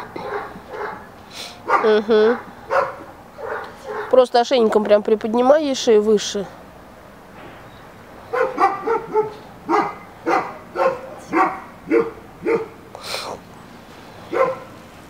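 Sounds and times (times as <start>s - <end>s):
dog barking: 0.0s - 4.2s, 8.3s - 12.8s, 14.3s - 14.8s.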